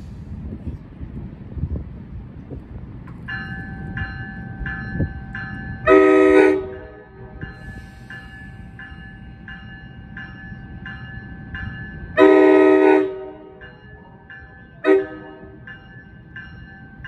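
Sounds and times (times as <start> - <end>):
crossing warning bell dinging: 3.1 - 17.0
train horn blasts: 5.8 - 7.4, 12.2 - 13.6, 14.8 - 15.6.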